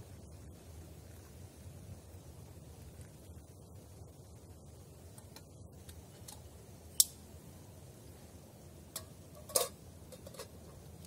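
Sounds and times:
steel pot and utensils clinking: 9.0 - 10.6.

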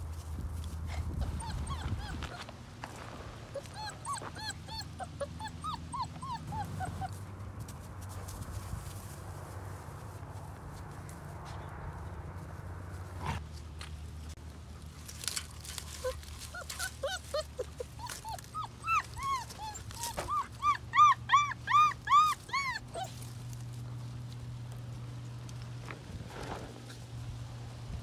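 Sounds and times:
puppy whimpering: 1.1 - 2.5, 3.5 - 7.2, 15.9 - 23.3.

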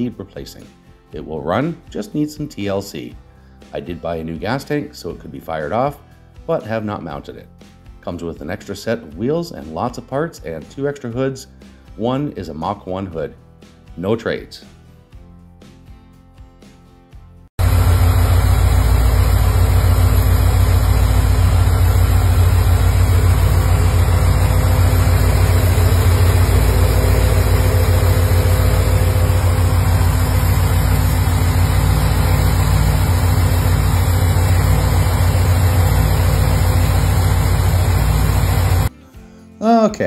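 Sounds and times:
car engine idling: 17.6 - 38.9.

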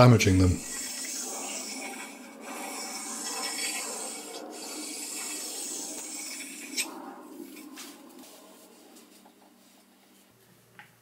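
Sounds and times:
hone stone scraping metal: 0.4 - 8.8.

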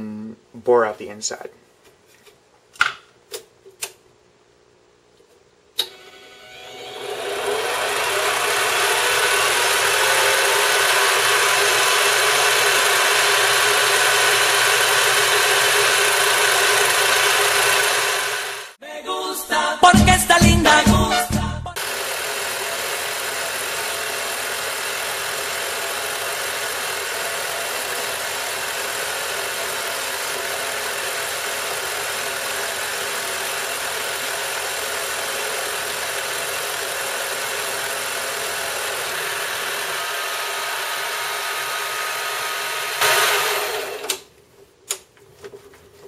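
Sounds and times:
metal lathe cutting: 6.0 - 18.8, 21.8 - 44.1.

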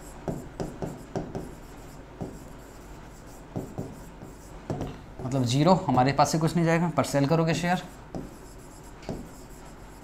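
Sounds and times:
marker writing on whiteboard: 0.0 - 5.4, 7.5 - 10.0.

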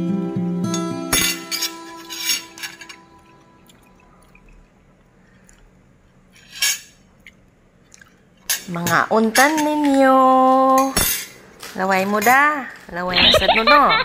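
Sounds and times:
soft guitar music: 0.0 - 4.0
cutlery clinking on plate: 1.1 - 3.0.

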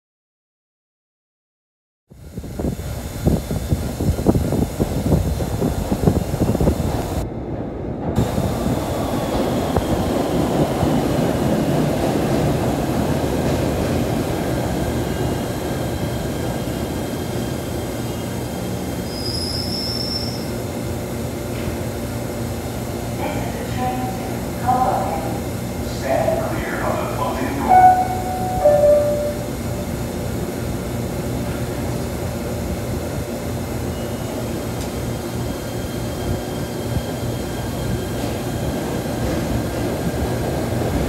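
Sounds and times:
subway train wheel rumble: 2.1 - 41.0
high wheel squeal: 19.0 - 20.6.

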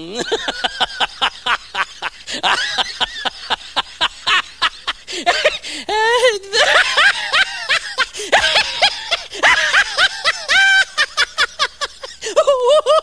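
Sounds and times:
high-pitched cackling laughter: 6.5 - 13.0.

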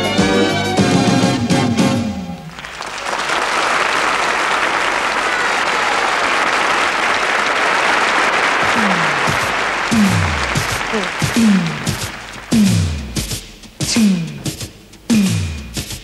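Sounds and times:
audience applauding: 2.4 - 13.4.

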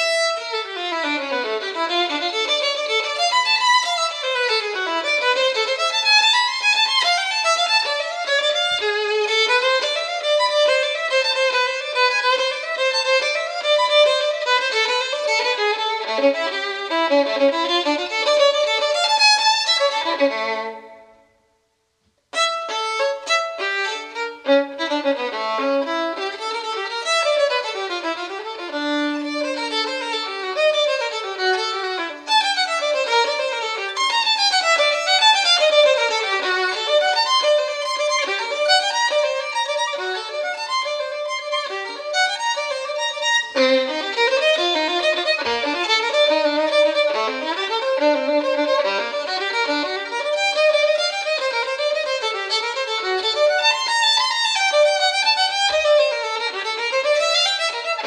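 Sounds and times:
violin playing quick runs: 0.0 - 21.1, 22.4 - 58.0.

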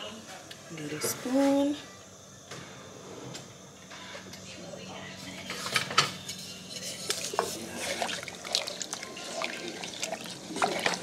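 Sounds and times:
pot of water bubbling: 6.8 - 11.0.

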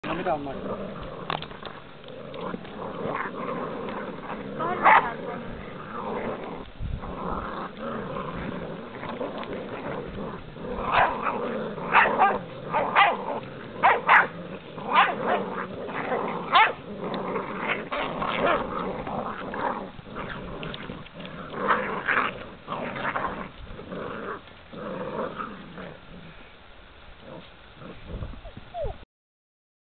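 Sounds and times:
puppies growling: 0.0 - 26.6, 27.2 - 29.0
puppies yipping and barking: 10.8 - 14.3, 28.4 - 29.0.

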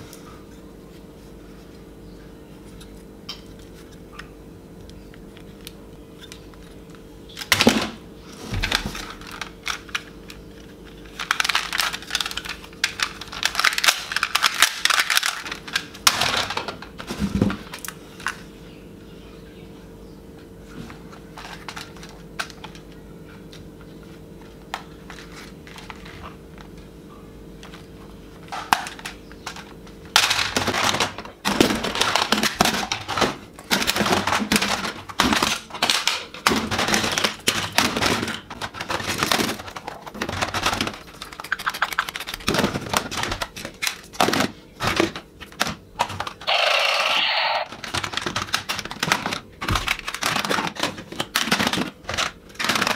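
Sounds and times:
plastic toy guns clattering: 11.1 - 16.8, 28.5 - 52.9.

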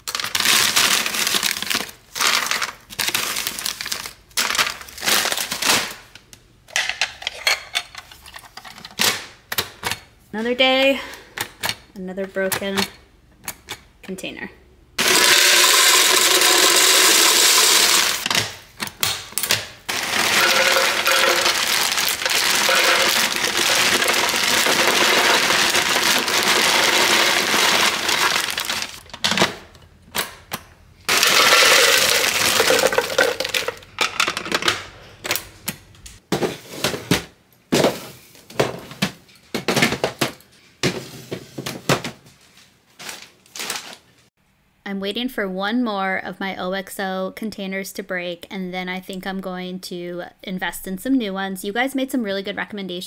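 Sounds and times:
dry cereal pouring: 15.0 - 18.2, 19.9 - 29.0, 31.1 - 33.8.

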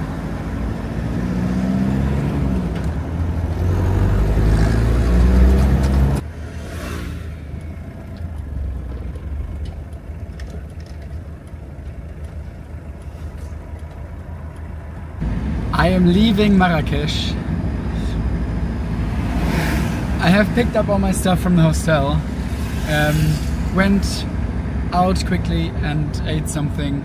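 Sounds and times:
car engine pulling through gears: 0.0 - 27.0
road noise: 0.0 - 27.0.

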